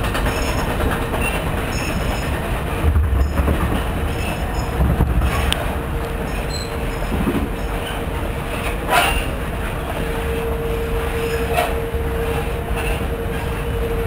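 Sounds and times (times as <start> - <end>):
conveyor mechanical rumble: 0.0 - 14.0
steady hum: 2.3 - 8.5.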